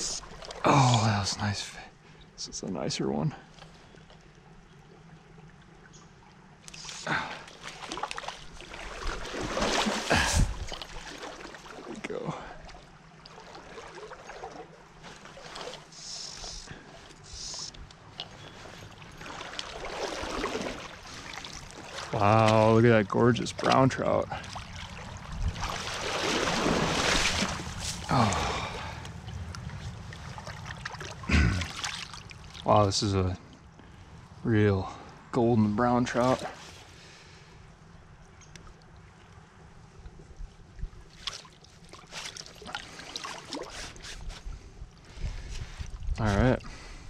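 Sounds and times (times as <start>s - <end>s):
water movement: 0.0s - 47.0s
fish splashing in water: 6.8s - 11.9s, 18.9s - 22.2s, 24.3s - 28.6s, 30.1s - 32.6s.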